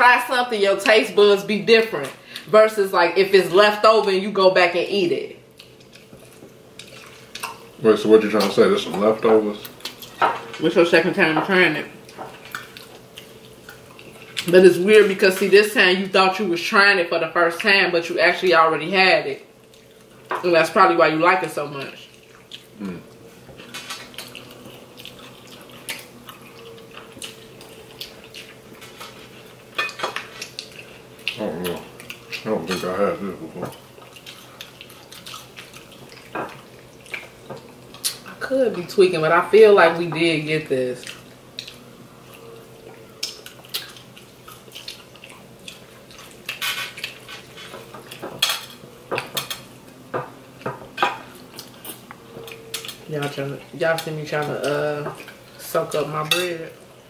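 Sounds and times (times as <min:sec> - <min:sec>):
wet chewing and slurping: 0:05.5 - 0:07.7, 0:12.0 - 0:14.5, 0:22.0 - 0:32.9, 0:33.7 - 0:38.3, 0:41.0 - 0:48.4.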